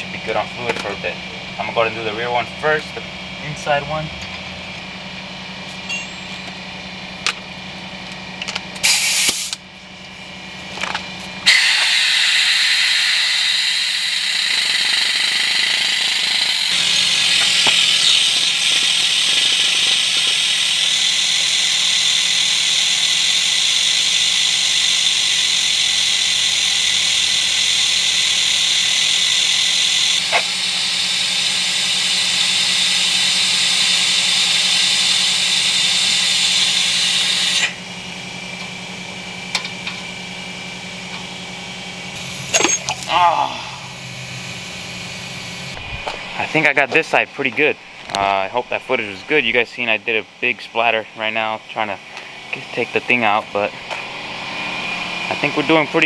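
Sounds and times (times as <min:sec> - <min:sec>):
pneumatic brake bleeder hissing: 0:08.8 - 0:09.7, 0:11.2 - 0:37.9, 0:42.1 - 0:46.7.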